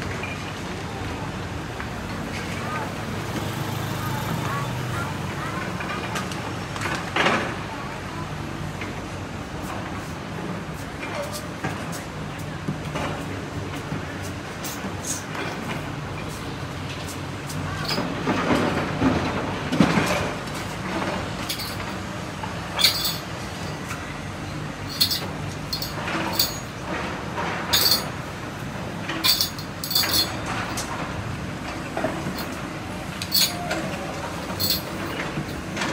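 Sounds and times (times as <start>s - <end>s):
debris clinking and clanking: 22.8s - 23.3s, 24.9s - 28.2s, 34.5s - 35.9s.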